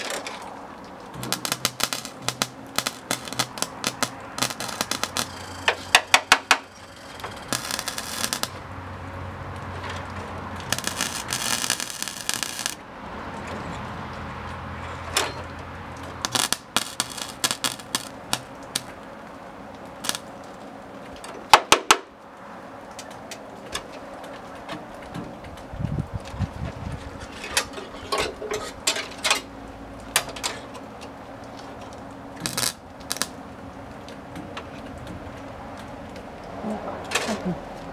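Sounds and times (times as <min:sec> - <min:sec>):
welding arc crackle: 0:00.0 - 0:12.9, 0:15.5 - 0:22.3, 0:28.7 - 0:34.4.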